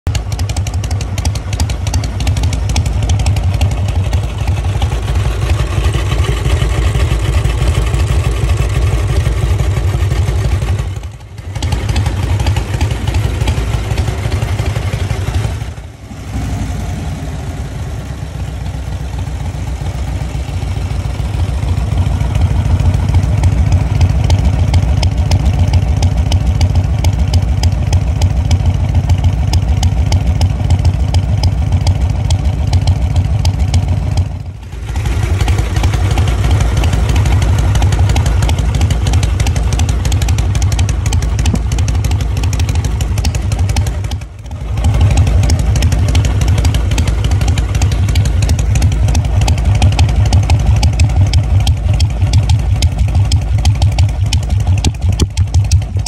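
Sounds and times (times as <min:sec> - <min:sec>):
motorcycle engine idling: 0:00.1 - 0:56.0.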